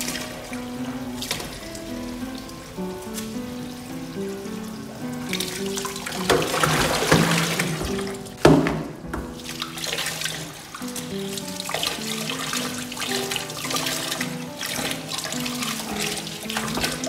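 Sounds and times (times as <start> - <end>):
simple melody background music: 0.0 - 17.0
tap water running into sink: 0.0 - 17.0
knock against sink: 6.3 - 9.3.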